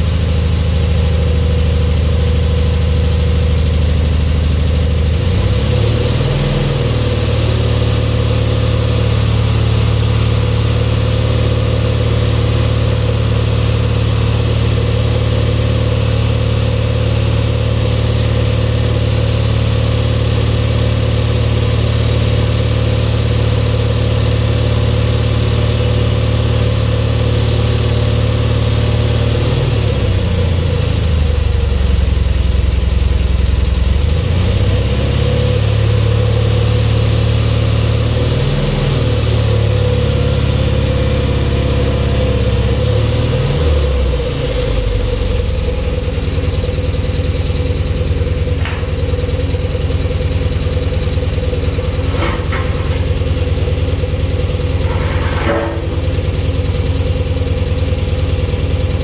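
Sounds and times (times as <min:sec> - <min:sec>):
propane engine running: 0:43.6 - 0:59.0.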